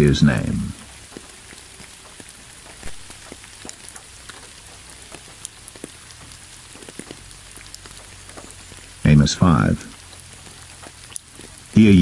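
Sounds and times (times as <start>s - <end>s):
low steady rumble: 0.0s - 0.9s
patter of raindrops: 0.0s - 12.0s
steady rain hiss: 0.0s - 12.0s.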